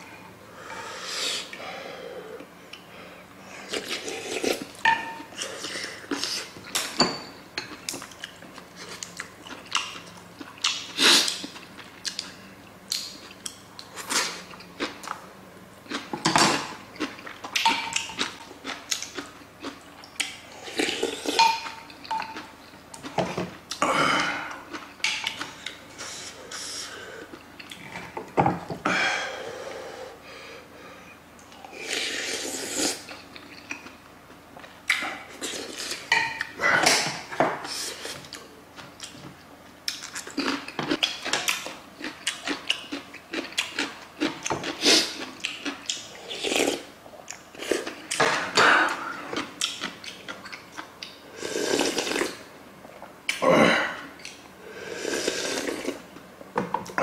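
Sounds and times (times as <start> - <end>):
slurping soup: 31.7 - 33.1, 51.3 - 52.4, 54.7 - 56.0
chewing: 39.9 - 48.2, 48.9 - 51.2.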